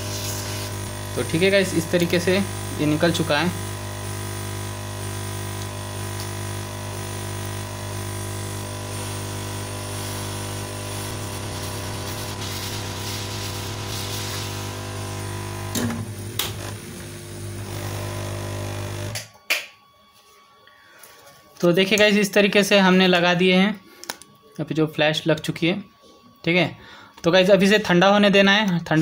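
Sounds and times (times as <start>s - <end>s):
hot air gun blowing: 0.0s - 1.3s, 7.0s - 19.2s.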